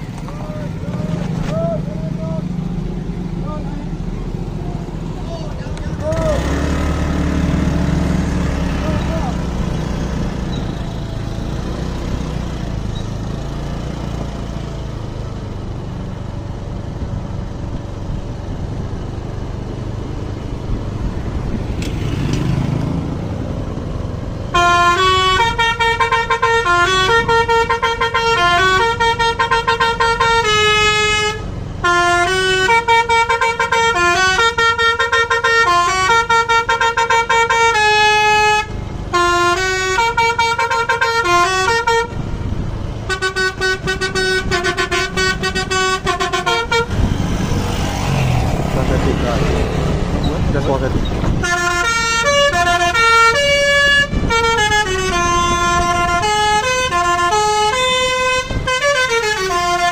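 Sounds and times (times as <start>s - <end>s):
bus engine rumble: 0.0s - 59.9s
road noise: 0.0s - 59.9s
bus horn playing a melody: 24.4s - 47.3s, 51.3s - 59.9s.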